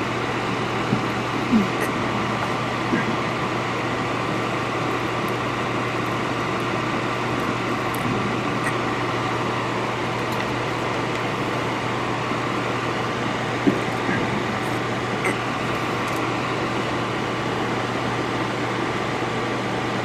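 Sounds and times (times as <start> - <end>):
electric blower fan running: 0.0 - 20.0.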